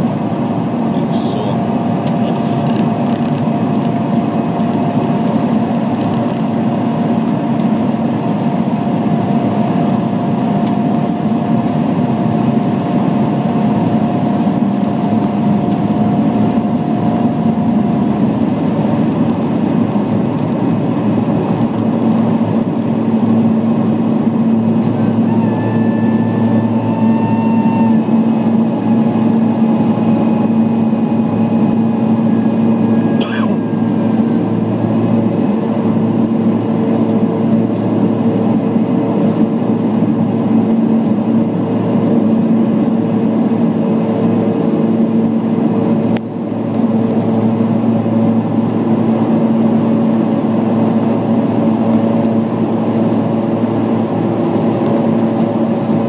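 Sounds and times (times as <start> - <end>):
jet engines roaring: 0.0 - 56.0
high whining tones: 24.8 - 35.1.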